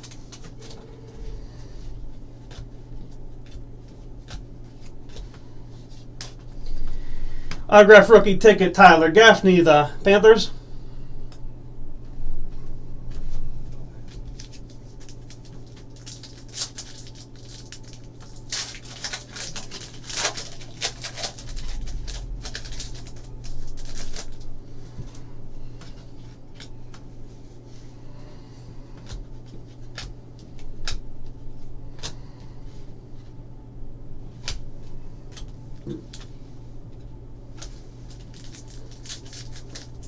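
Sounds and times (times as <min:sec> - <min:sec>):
trading cards rustling and clicking: 0:00.0 - 0:06.8, 0:13.7 - 0:27.7, 0:28.9 - 0:32.4, 0:37.5 - 0:40.0
steady low hum: 0:00.0 - 0:40.0.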